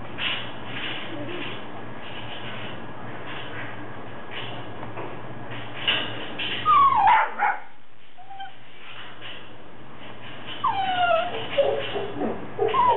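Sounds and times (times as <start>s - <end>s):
puppies whining and yipping: 6.6s - 7.4s, 8.2s - 8.6s, 10.6s - 12.9s.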